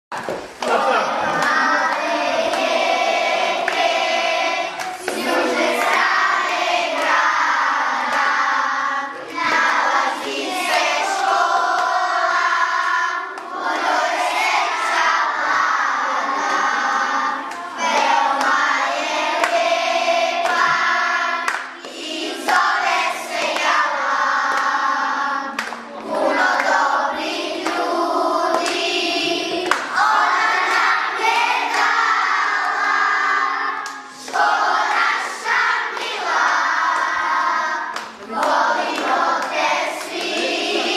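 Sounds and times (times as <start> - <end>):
children singing in unison: 0.7 - 40.9.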